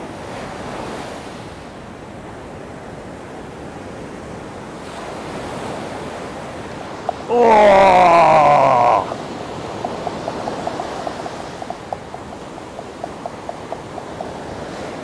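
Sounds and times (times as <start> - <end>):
ocean surf breaking: 4.2 - 15.0
man exclaiming: 7.1 - 9.2.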